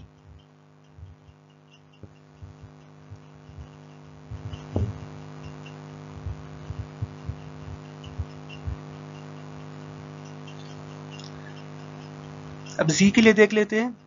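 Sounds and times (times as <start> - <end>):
soft low thumps: 0.0 - 1.4, 2.0 - 9.0
electrical hum: 0.0 - 14.0
loud knock: 4.4 - 5.0.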